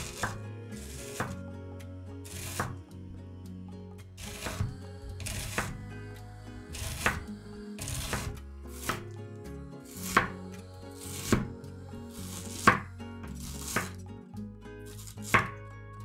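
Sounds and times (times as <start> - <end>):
knife slicing onion: 0.0 - 1.5, 2.3 - 2.8, 4.2 - 5.9, 6.7 - 9.2, 9.8 - 14.0, 14.9 - 15.6.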